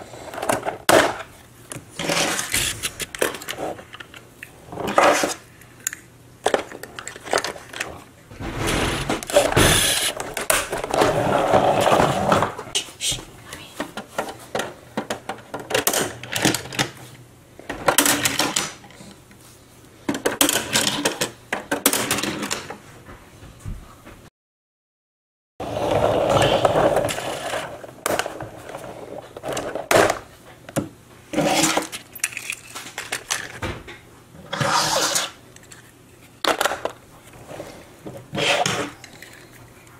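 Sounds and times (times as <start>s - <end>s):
toy cars clicking and rattling: 5.1s - 7.9s, 31.6s - 33.6s, 38.6s - 39.9s.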